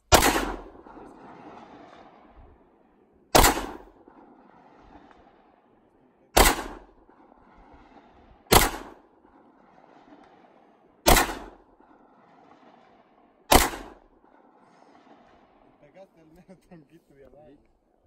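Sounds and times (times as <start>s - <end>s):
pistol shots: 0.0s - 2.3s, 3.3s - 5.4s, 6.3s - 12.9s, 13.5s - 14.1s.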